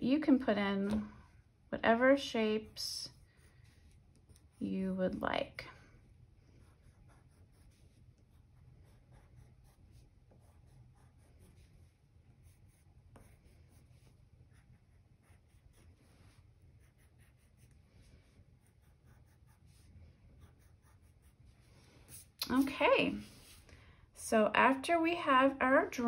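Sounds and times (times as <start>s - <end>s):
crayon scratching on paper: 2.4s - 5.0s, 6.6s - 22.6s.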